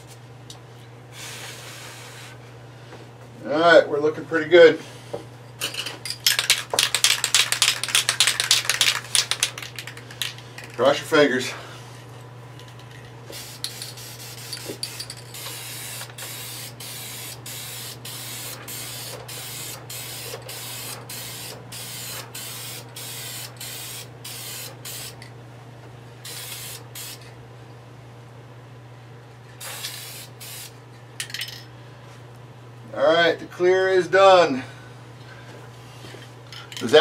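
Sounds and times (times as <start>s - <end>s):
steady low hum: 0.0s - 37.0s
aerosol spray can hissing: 13.3s - 25.2s, 26.3s - 27.2s, 29.6s - 30.8s.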